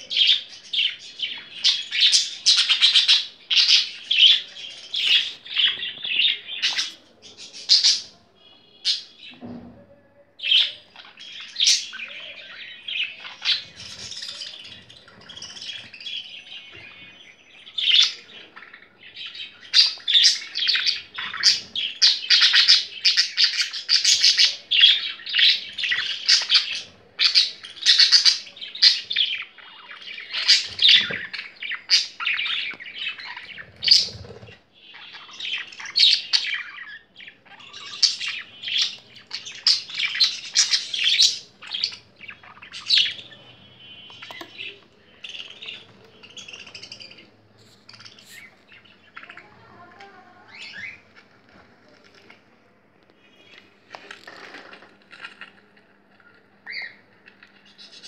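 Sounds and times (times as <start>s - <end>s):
budgerigars chirping: 0.1s - 7.0s, 19.6s - 49.4s.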